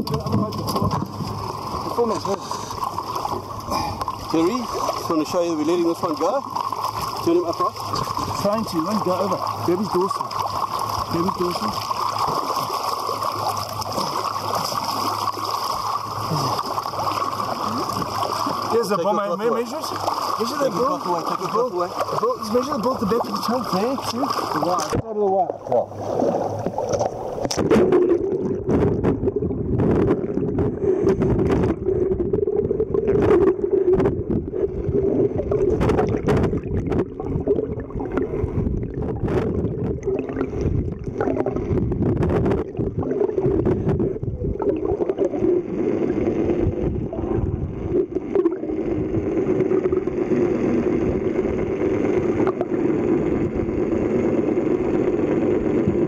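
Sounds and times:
boat engine drone underwater: 0.0 - 56.0.

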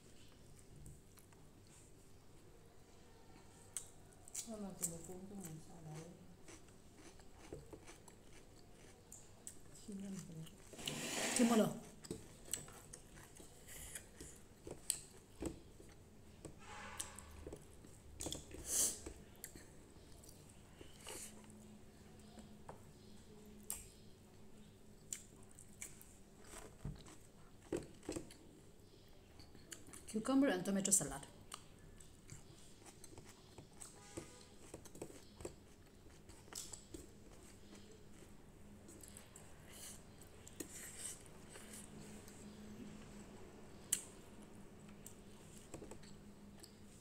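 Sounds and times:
quiet chewing: 0.0 - 2.5, 3.2 - 11.0, 11.8 - 16.0, 17.1 - 30.2, 31.4 - 43.1
chewing and mouth clicks: 6.4 - 10.6, 29.4 - 30.1.

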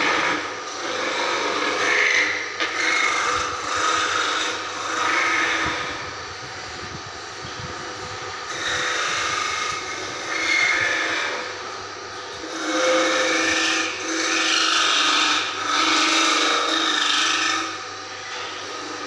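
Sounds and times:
wood filing and sanding rasps: 0.0 - 6.0, 8.5 - 11.5, 12.4 - 17.8
steady low hum: 0.0 - 19.0.

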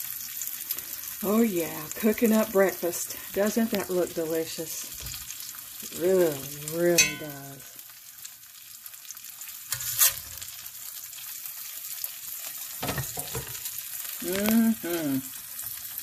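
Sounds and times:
food sizzling in a skillet: 0.0 - 16.0.

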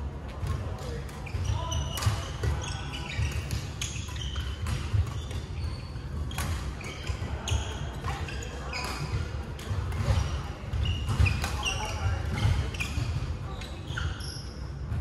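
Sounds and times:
shoe squeaks on wooden floor: 1.2 - 9.2, 10.1 - 14.7
rackets striking shuttlecocks: 1.9 - 13.3.

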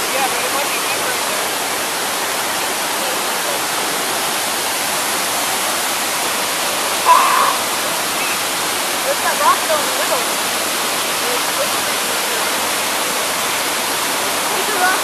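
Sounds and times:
whitewater rushing over boulders: 0.0 - 15.0.

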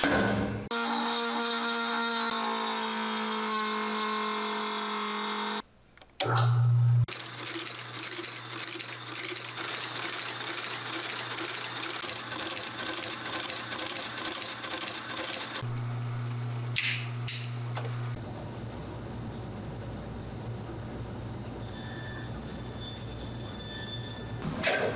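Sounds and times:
stitching machine clatter: 7.1 - 15.6.

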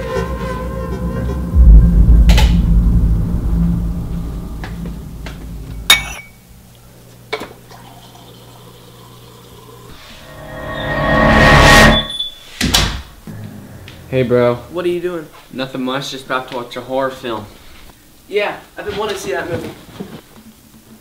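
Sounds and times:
low rumbling drone: 0.4 - 7.1, 10.2 - 12.2
glass and dishes clinking: 5.9 - 6.4
water dispenser filling a glass: 7.6 - 9.9.

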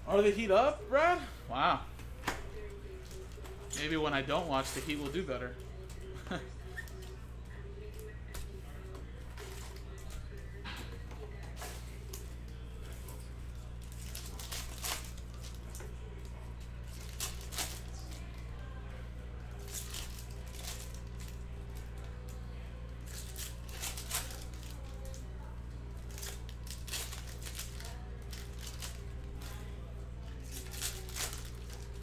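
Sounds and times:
low steady hum: 0.0 - 32.0
foil packs torn and crinkled: 13.8 - 15.7, 16.9 - 18.4, 19.5 - 21.8, 23.1 - 25.2, 26.0 - 29.6, 30.4 - 32.0.

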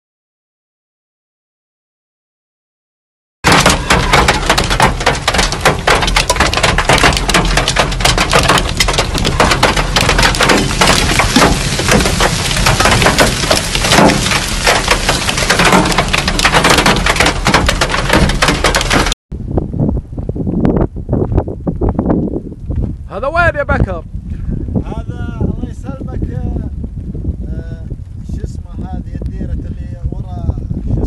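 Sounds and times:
hail clattering on vehicle roof: 3.5 - 19.2.

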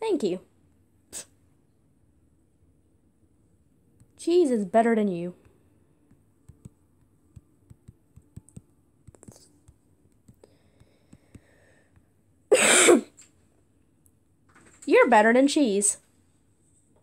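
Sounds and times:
fingertips tapping touchscreen: 5.4 - 12.1
person coughing: 12.5 - 13.2.

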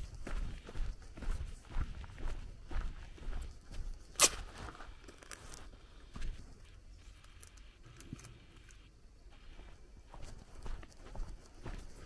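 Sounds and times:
footsteps on gravel: 0.0 - 6.6, 9.4 - 12.0
sharp crack: 4.2 - 4.5.

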